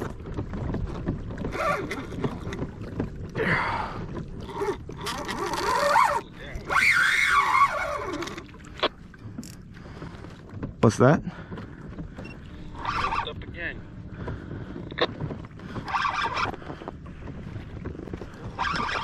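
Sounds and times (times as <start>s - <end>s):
fishing reel whining: 4.6s - 8.5s, 15.8s - 16.6s, 18.5s - 19.0s.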